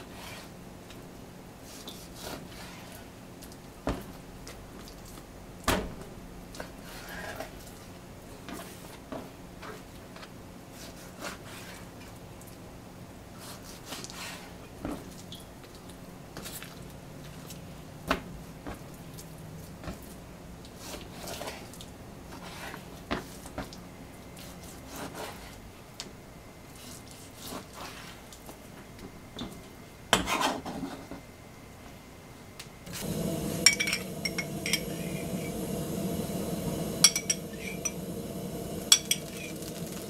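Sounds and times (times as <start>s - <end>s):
faint steady hum: 30.9s - 40.0s.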